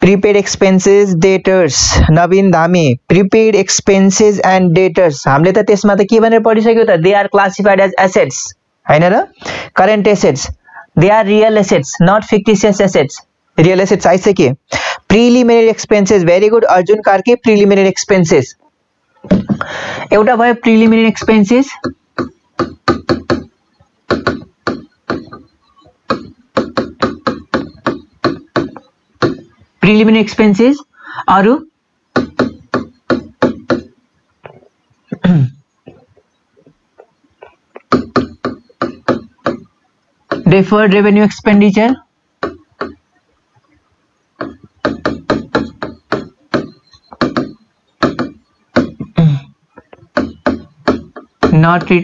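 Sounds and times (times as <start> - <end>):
marker pen writing on whiteboard: 20.8 - 29.7, 32.1 - 34.8, 35.9 - 40.7, 42.4 - 43.0, 44.4 - 52.0.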